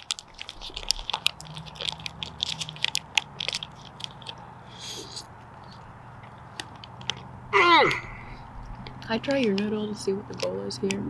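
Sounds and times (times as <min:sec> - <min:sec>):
fork crinkling foil pouch: 0:00.0 - 0:05.8
biting and chewing: 0:00.0 - 0:11.0.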